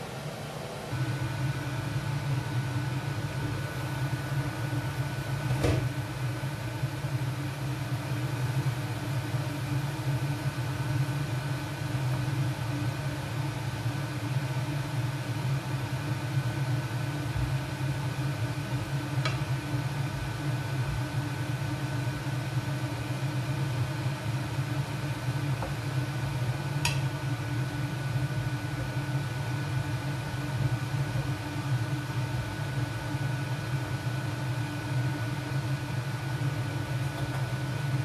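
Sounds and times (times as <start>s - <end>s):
appliance fan hum: 0.0s - 38.0s.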